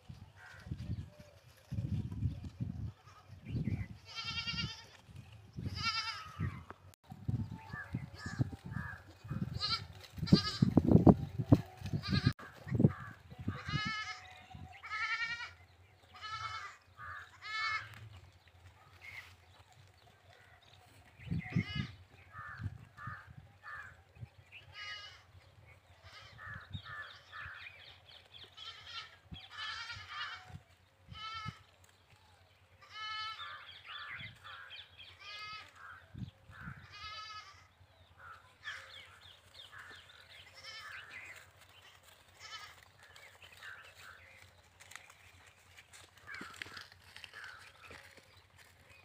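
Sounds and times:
goats and sheep bleating: 3.0 - 6.7, 7.6 - 31.9, 32.7 - 36.0, 36.6 - 49.0.

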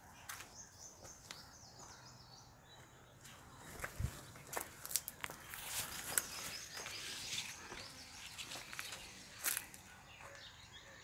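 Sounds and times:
walking through undergrowth: 2.7 - 10.5.

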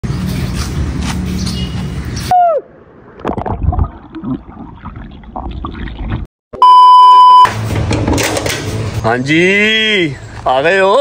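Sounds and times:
outdoor background noise: 0.0 - 6.3, 7.4 - 11.0
electronic beep: 6.6 - 7.5
clattering noise: 7.5 - 9.0.

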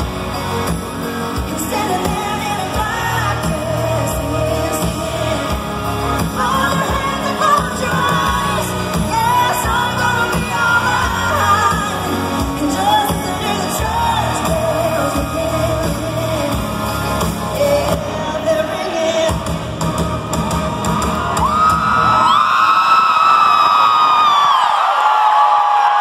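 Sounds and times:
live country-rock band: 0.0 - 25.1
crowd cheering and screaming: 0.0 - 26.0
woman singing lead: 0.3 - 19.7.

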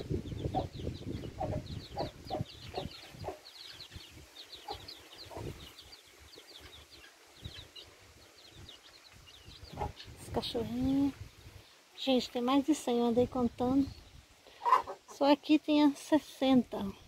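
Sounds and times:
high chirps and peeps: 0.0 - 11.8.

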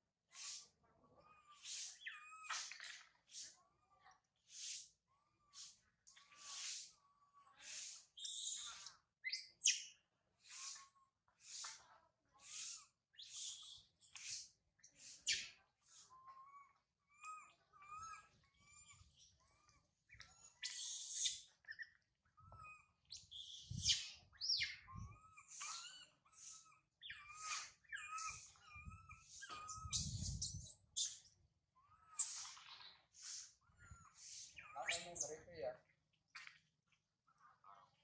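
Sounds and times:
baby monkey squealing: 8.0 - 9.9, 12.4 - 15.5, 16.1 - 21.5, 22.4 - 35.6.

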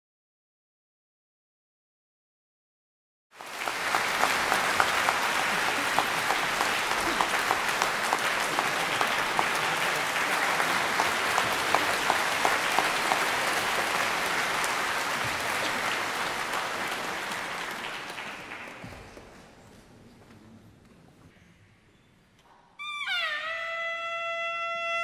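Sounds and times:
audience applauding: 3.3 - 19.3.

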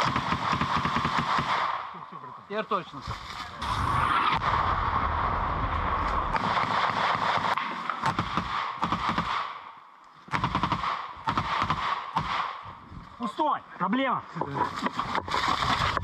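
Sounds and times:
automatic rifle fire: 0.0 - 1.8, 6.3 - 9.6, 10.3 - 12.6.

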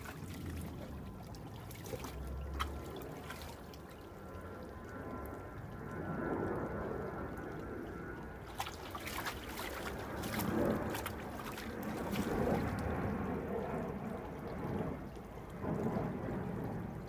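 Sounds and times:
dog splashing in water: 0.0 - 3.9, 8.5 - 13.2.

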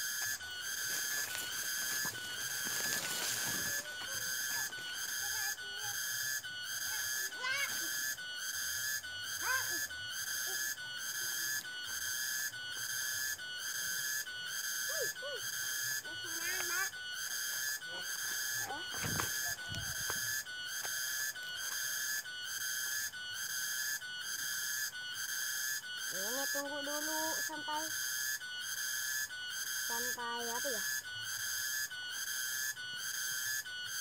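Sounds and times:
high whistle-like tone pulsing: 0.0 - 14.2, 14.8 - 16.9, 17.5 - 22.2.

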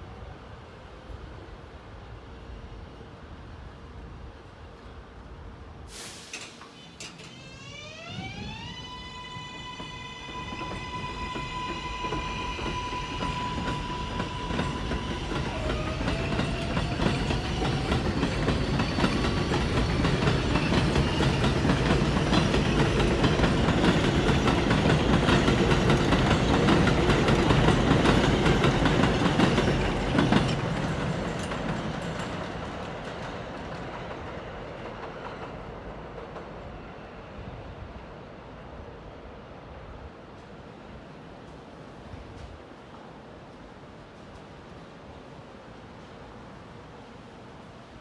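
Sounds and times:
train wheels rumbling on rails: 5.9 - 38.3.

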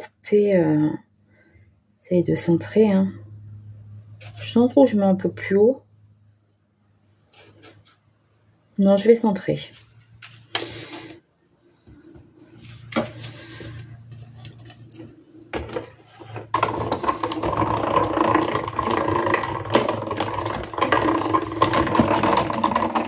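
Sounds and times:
die-cutting machine rattling: 16.5 - 23.0.

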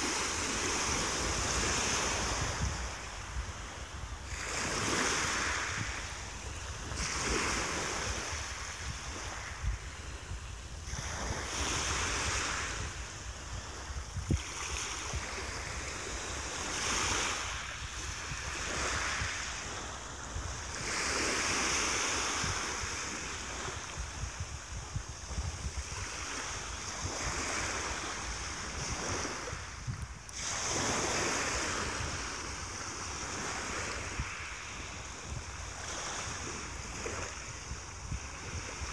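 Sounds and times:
waves washing up a pebble beach: 0.0 - 38.9
wind rumble on microphone: 0.0 - 38.9.

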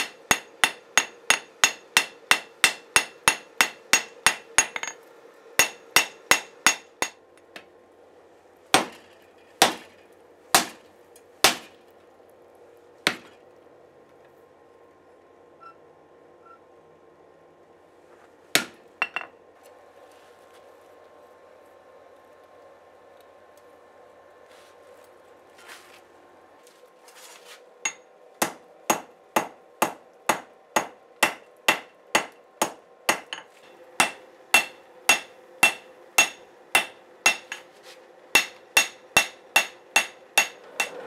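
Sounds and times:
hammer striking steel on anvil: 0.0 - 5.0, 5.6 - 7.6, 8.7 - 9.9, 10.5 - 10.8, 11.4 - 11.7, 27.8 - 37.7, 38.3 - 41.0.

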